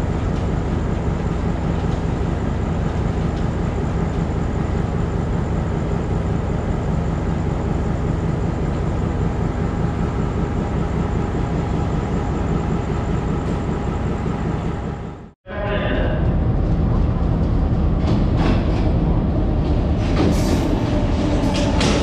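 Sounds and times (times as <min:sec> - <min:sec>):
diesel locomotive engine humming: 0:00.0 - 0:22.0.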